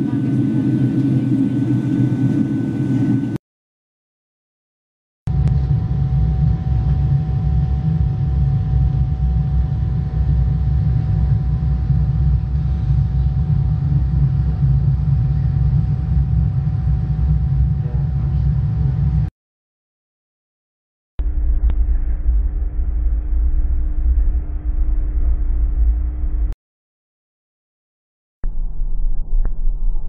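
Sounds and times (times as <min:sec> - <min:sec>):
airliner cabin rumble: 0:00.0 - 0:03.4, 0:05.3 - 0:19.3, 0:21.2 - 0:26.6
faint steady whine: 0:05.3 - 0:19.3, 0:21.2 - 0:26.6.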